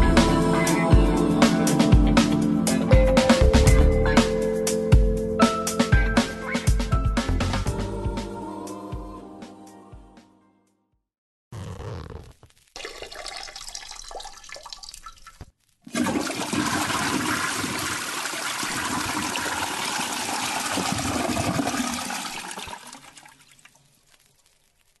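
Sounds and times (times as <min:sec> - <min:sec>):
rushing water: 0:12.8 - 0:24.3.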